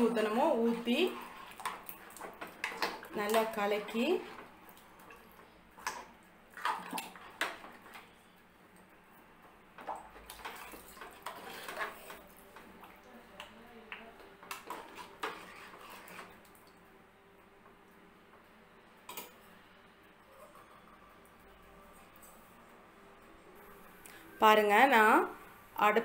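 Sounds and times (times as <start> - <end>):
liquid sloshing: 0.0 - 8.2, 9.8 - 13.2.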